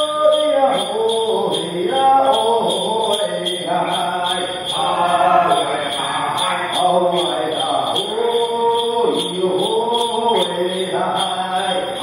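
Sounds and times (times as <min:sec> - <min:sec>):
group of singers chanting: 0:03.8 - 0:08.0.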